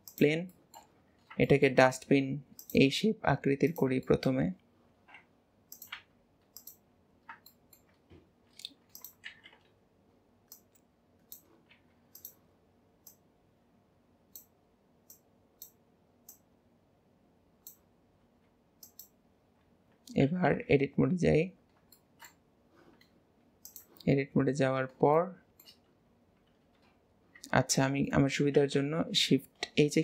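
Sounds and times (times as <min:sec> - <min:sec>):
computer mouse clicks: 0:00.0 - 0:01.6, 0:02.6 - 0:02.9, 0:05.0 - 0:09.8, 0:10.5 - 0:12.4, 0:13.0 - 0:13.2, 0:14.3 - 0:16.5, 0:17.6 - 0:17.9, 0:18.8 - 0:19.2, 0:21.7 - 0:24.1, 0:25.5 - 0:27.5
keyboard keys clicking: 0:05.1 - 0:08.0, 0:08.6 - 0:09.7.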